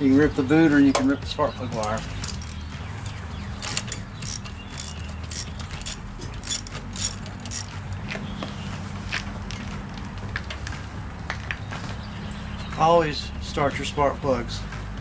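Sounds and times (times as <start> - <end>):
ratchet wrench clicking: 1.8 - 2.6, 3.6 - 7.8.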